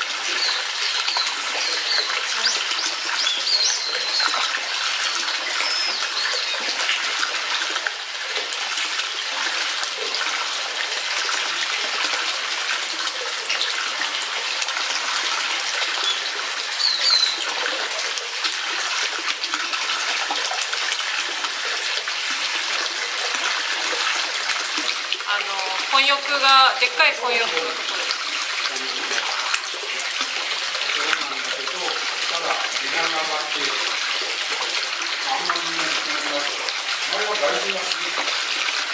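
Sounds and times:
flowing water rushing: 0:00.0 - 0:38.9
bird chirping: 0:00.4 - 0:04.4, 0:05.5 - 0:06.6, 0:16.8 - 0:17.5.

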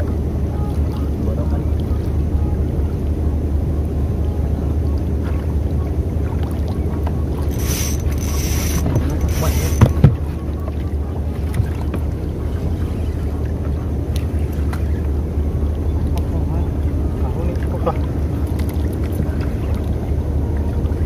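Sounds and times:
fishing line running off reel: 0:07.4 - 0:10.0.

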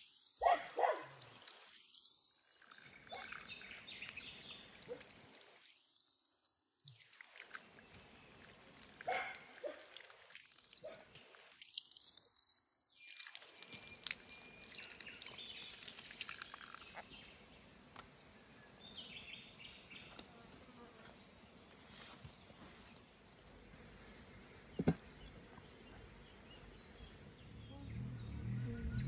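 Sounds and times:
water dripping and trickling: 0:00.1 - 0:17.2.

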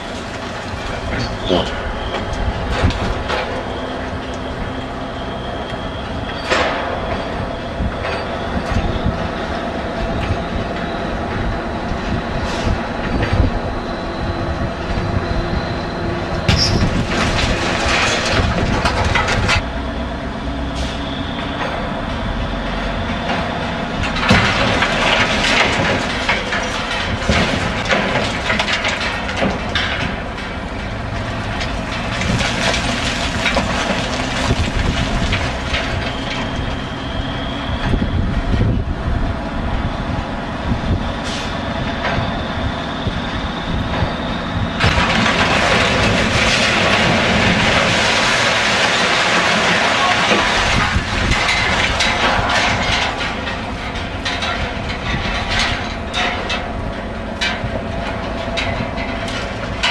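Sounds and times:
crane engine running: 0:00.0 - 0:59.9
rattling and clattering: 0:16.5 - 0:19.6, 0:44.8 - 0:59.9.

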